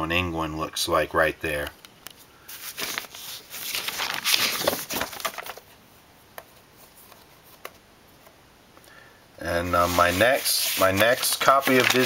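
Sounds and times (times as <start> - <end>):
record sleeve rustling and sliding: 2.5 - 5.8, 9.7 - 12.0.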